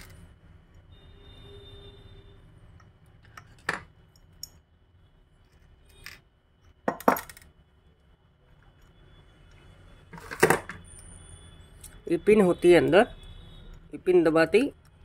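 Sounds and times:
parts set down on bench: 3.6 - 3.9, 6.8 - 7.4, 10.2 - 10.8
parts knocking together: 6.8 - 7.5, 10.1 - 10.8.

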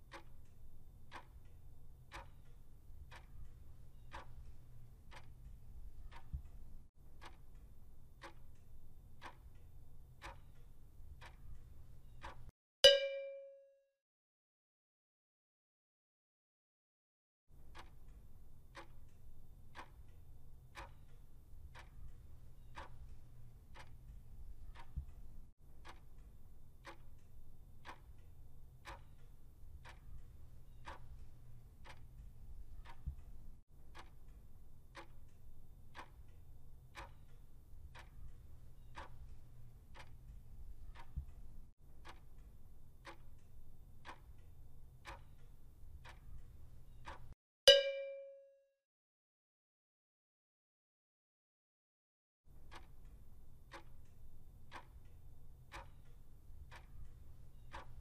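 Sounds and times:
clock ticking: 0.0 - 13.5, 17.6 - 48.3, 52.5 - 58.0.

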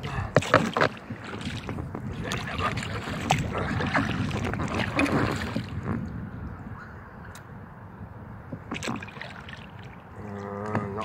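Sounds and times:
paddle strokes splashing: 0.0 - 6.2, 8.5 - 11.0.

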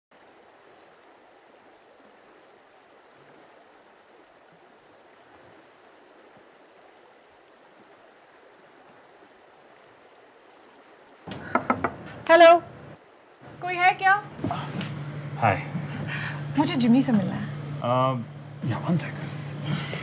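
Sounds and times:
outdoor rushing hiss: 11.3 - 13.0, 14.3 - 20.0.

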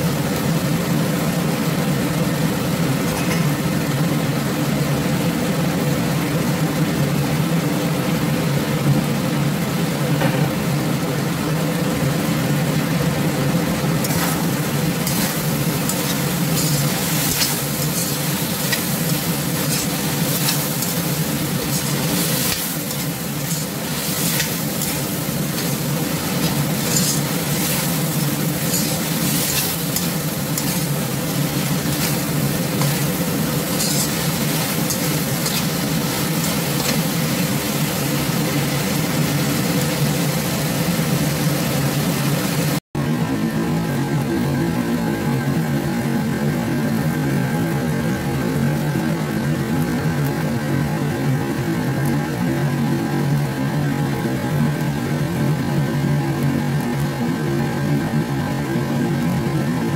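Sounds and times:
food sizzling in a wok: 0.0 - 42.8
steady low hum: 0.0 - 46.5
spatula scraping and knocking wok: 14.0 - 39.9.

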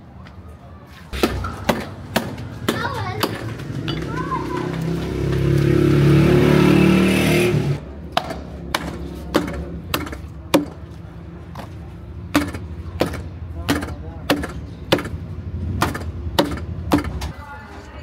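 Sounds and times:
cleaver chopping meat and bone: 1.2 - 3.7, 8.1 - 10.8, 12.3 - 15.2, 15.8 - 17.3.

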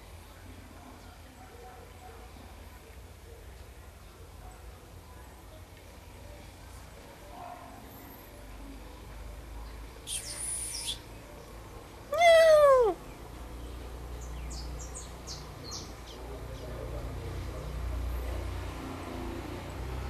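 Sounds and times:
faint high chirps: 10.1 - 11.1
cat meowing: 12.1 - 13.0.

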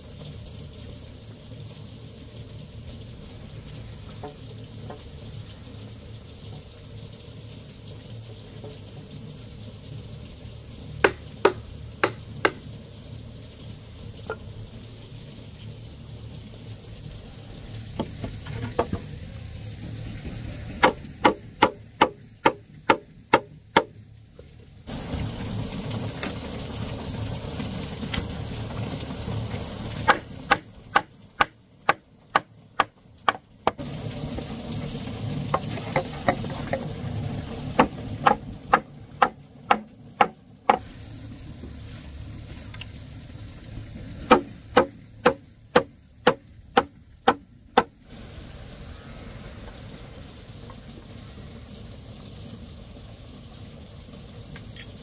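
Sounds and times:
food sizzling in a pan: 33.8 - 37.8.

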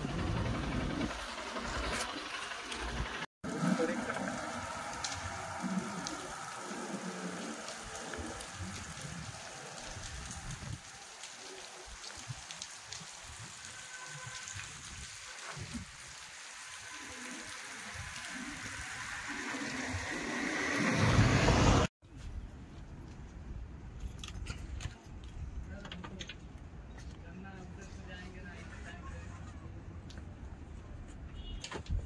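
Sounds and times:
steady rain patter: 0.6 - 21.8.

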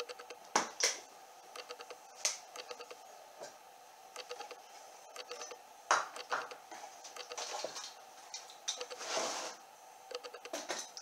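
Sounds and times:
rustling scrape: 8.9 - 9.6.

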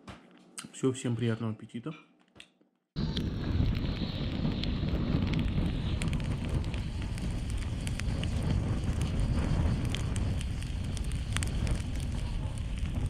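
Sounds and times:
fire crackling and popping: 3.0 - 13.0
flame rushing: 3.0 - 13.0.

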